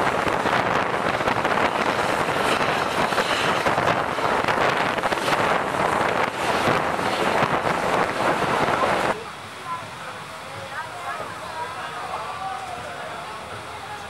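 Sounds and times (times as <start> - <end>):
wind rushing over microphone: 0.0 - 9.2
train running on track: 0.0 - 14.0.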